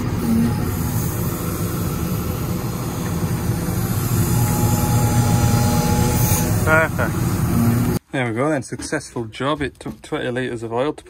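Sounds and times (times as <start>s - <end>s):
diesel engine idling: 0.0s - 8.0s.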